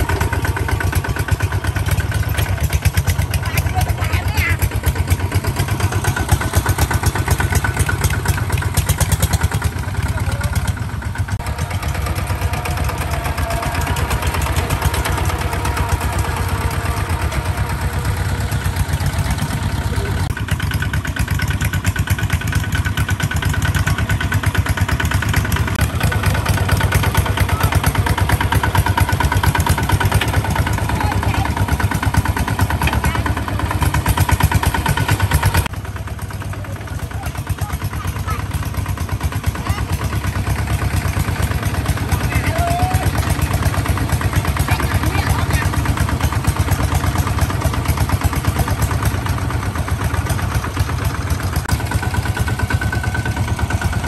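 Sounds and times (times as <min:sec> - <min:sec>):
diesel tractor engine running: 0:00.0 - 0:54.0.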